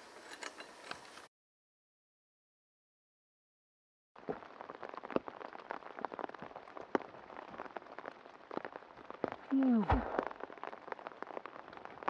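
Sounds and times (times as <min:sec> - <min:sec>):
dense crackling of sharp ticks: 0:04.2 - 0:12.0.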